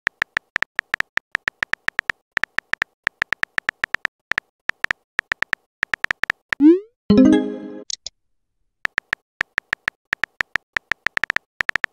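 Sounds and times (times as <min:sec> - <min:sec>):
phone keyboard clicks: 0:08.9 - 0:11.9.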